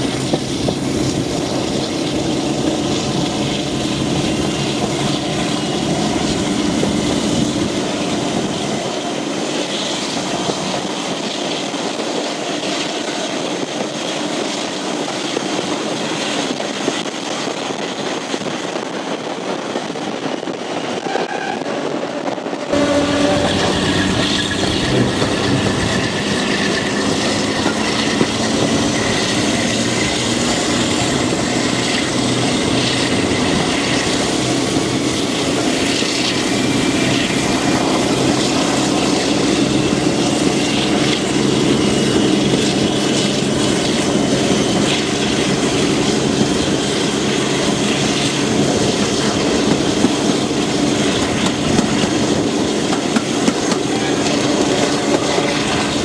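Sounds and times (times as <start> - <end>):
diesel engine drone: 0.0 - 11.1, 22.7 - 56.0
train wheels clattering over rails: 0.0 - 56.0.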